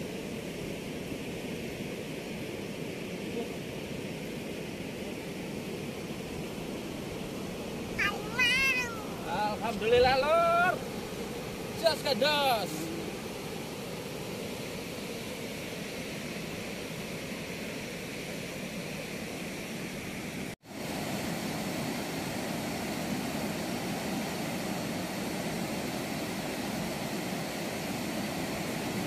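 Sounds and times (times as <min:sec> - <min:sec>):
turbulent water rushing through weir: 0:07.8 - 0:17.4.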